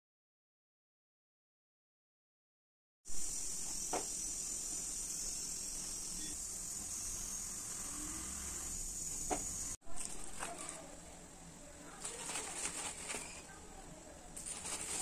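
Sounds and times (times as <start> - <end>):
high-pitched hiss: 3.1 - 9.8.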